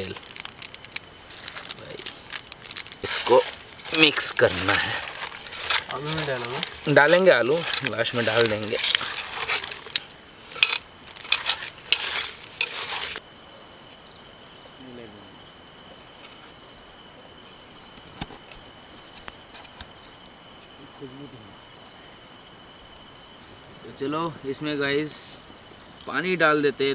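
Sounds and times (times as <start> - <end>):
campfire pops: 0.0 - 13.2
crickets chirping: 0.0 - 26.9.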